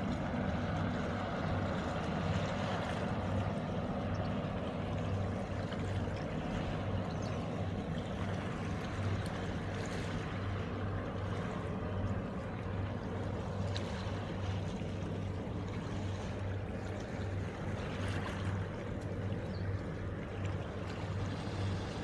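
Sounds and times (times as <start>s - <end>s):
distant boat engine hum: 0.0s - 22.0s.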